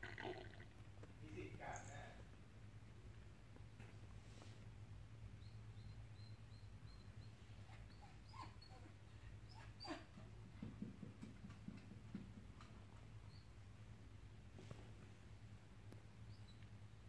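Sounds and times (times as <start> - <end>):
dog whimpering: 7.7 - 10.2.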